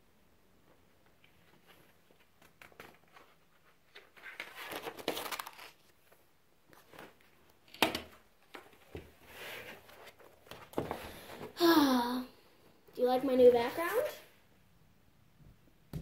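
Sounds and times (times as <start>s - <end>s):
paper pages rustling: 1.1s - 7.6s.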